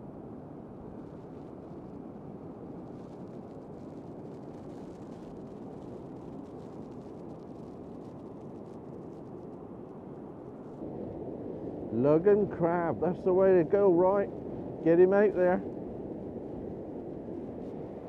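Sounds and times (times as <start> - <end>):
wind buffeting microphone: 10.8 - 18.0
surf washing over sand: 11.2 - 16.2.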